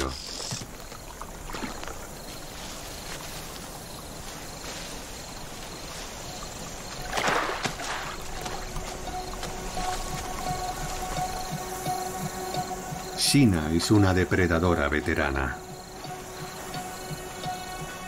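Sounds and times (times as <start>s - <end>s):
shallow water trickling: 0.0s - 18.0s.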